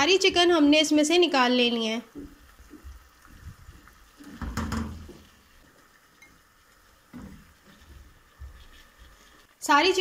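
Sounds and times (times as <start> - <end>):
faint oil sizzle: 0.0 - 10.0
spoon scraping in a pot: 7.1 - 10.0.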